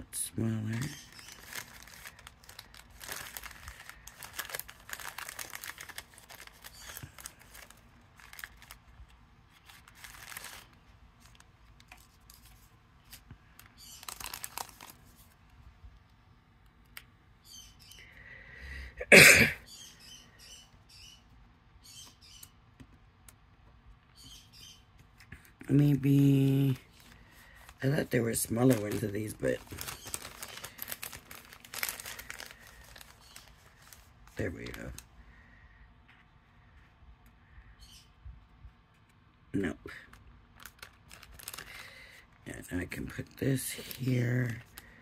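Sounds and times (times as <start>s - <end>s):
paper and cellophane rustling: 0.2s - 15.5s, 25.1s - 35.1s, 40.0s - 45.0s.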